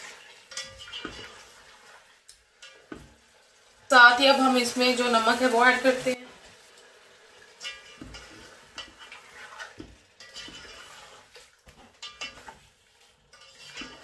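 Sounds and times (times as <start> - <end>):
spatula scraping metal pot: 0.0 - 3.3, 7.4 - 14.0
chicken sizzling: 0.0 - 14.0.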